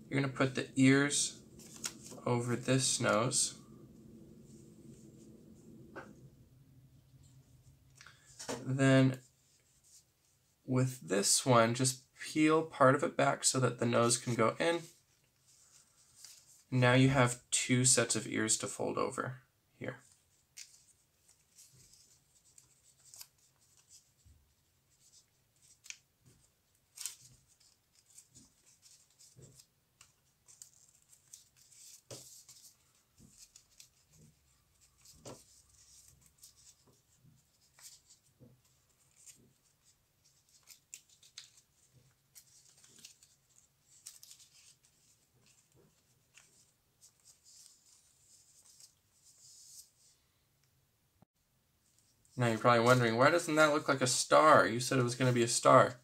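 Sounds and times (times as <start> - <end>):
paper rustling and crinkling: 1.1 - 3.6, 14.1 - 16.7, 19.9 - 50.2
soft clicks of paper creasing: 1.5 - 3.6, 14.8 - 16.7, 19.9 - 50.2.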